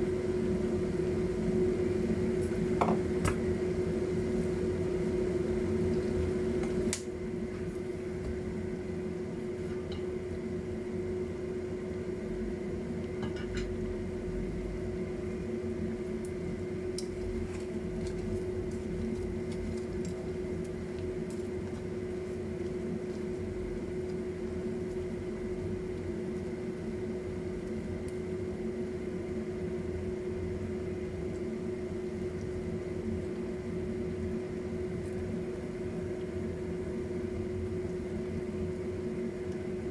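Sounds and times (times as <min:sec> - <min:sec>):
food deep-frying in oil: 0:00.0 - 0:39.9
steady mechanical hum: 0:00.0 - 0:39.9.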